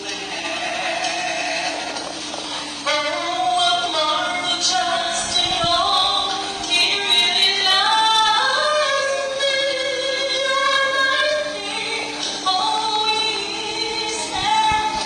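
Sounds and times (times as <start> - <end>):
woman singing into a microphone: 0.0 - 2.0, 2.8 - 15.0.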